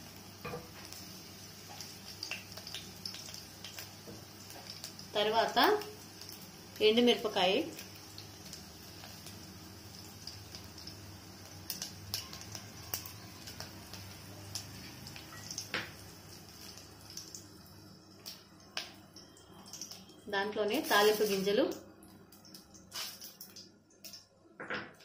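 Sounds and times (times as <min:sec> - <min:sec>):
hot oil crackling and popping: 0:00.0 - 0:24.3
faint steady hum: 0:00.0 - 0:24.6.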